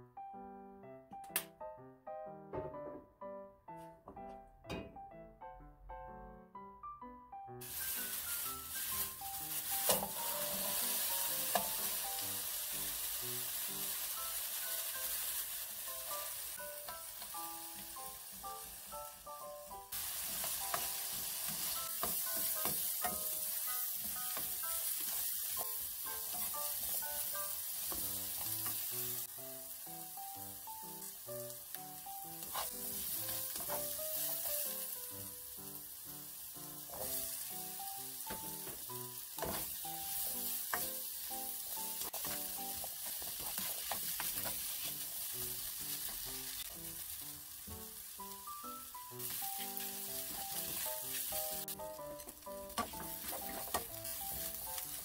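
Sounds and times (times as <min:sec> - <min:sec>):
light background melody: 0:00.0 - 0:55.0
vegetables sizzling in oil: 0:07.6 - 0:55.0.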